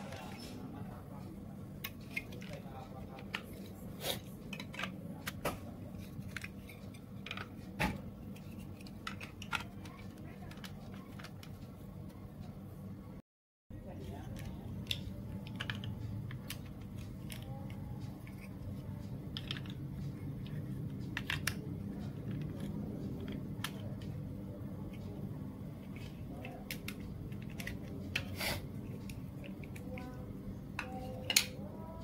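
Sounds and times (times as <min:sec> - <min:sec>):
steady low hum: 0:00.0 - 0:32.0
plastic bricks clicking and knocking: 0:04.4 - 0:07.6, 0:08.3 - 0:11.7, 0:14.0 - 0:31.7.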